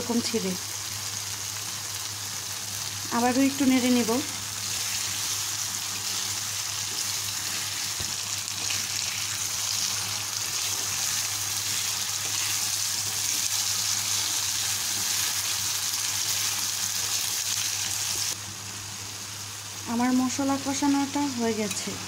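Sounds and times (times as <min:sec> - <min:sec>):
paste sizzling in oil: 0:00.2 - 0:19.8
spatula stirring: 0:04.6 - 0:17.2.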